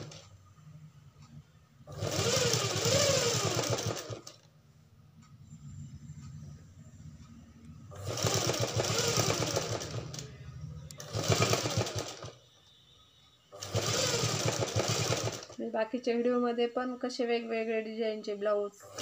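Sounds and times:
sewing machine stitching: 0:00.0 - 0:00.2, 0:01.9 - 0:04.4, 0:07.9 - 0:10.3, 0:11.0 - 0:12.4, 0:13.6 - 0:15.6.

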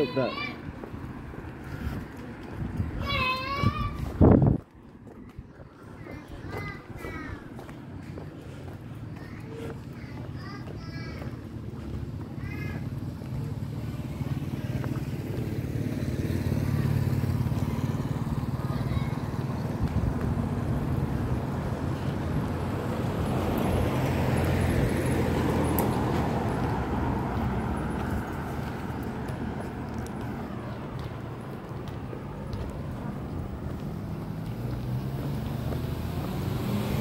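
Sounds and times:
low engine hum: 0:07.4 - 0:37.0
motorbike passing by: 0:11.1 - 0:37.0.

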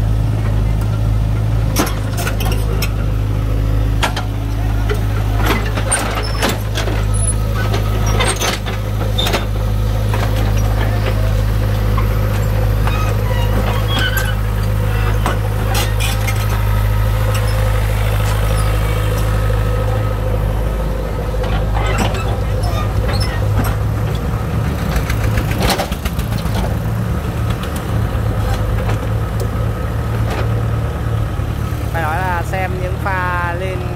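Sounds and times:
diesel engine running: 0:00.0 - 0:33.9
steel tracks clanking on ramps: 0:04.0 - 0:20.0, 0:21.2 - 0:29.5.

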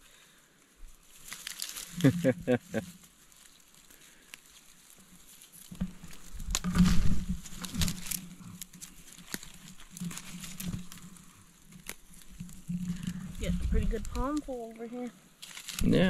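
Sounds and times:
dry ferns rustling and crackling: 0:00.0 - 0:16.0
stalks snapping: 0:01.2 - 0:02.1, 0:05.6 - 0:13.2, 0:15.4 - 0:15.9
low bumps: 0:12.2 - 0:14.5.

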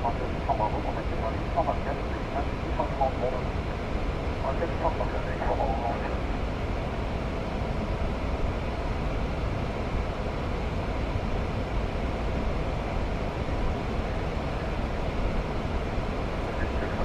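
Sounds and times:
aircraft engine noise: 0:00.0 - 0:17.0
airflow rushing in cockpit: 0:00.0 - 0:17.0.

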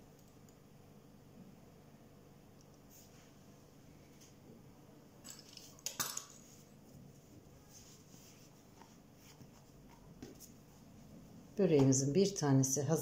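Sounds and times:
soft handling of dough: 0:02.8 - 0:05.8, 0:06.4 - 0:12.1.

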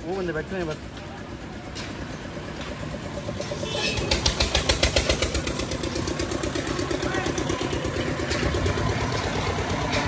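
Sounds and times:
engine knocking rhythmically: 0:00.0 - 0:10.0.

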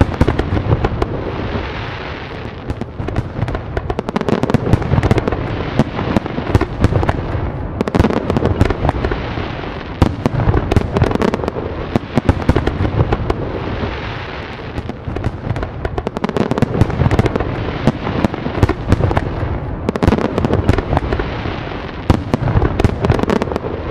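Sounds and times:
fireworks cracks and pops: 0:00.0 - 0:23.9.

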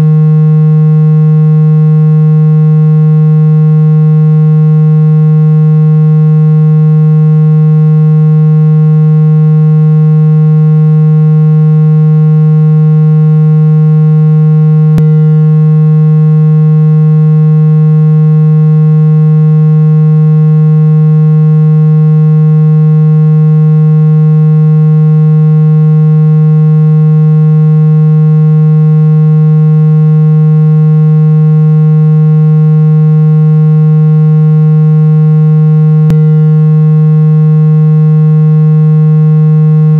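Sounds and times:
low-pitched buzzing tone: 0:00.0 - 0:39.9.

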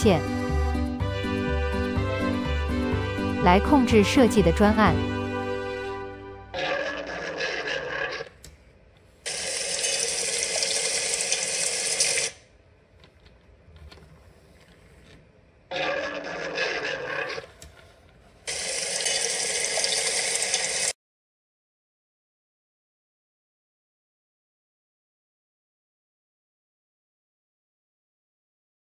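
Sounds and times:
toy robot motor and gears: 0:09.2 - 0:12.4, 0:18.5 - 0:20.9.

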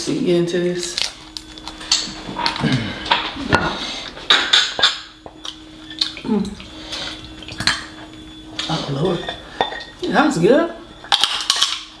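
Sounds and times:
crab shells cracking: 0:00.8 - 0:02.6
wet licking and eating: 0:05.3 - 0:08.8.

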